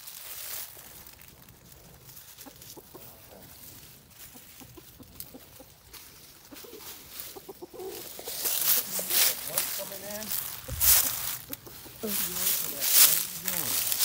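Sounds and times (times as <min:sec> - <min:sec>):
hens clucking softly: 0:01.8 - 0:14.0.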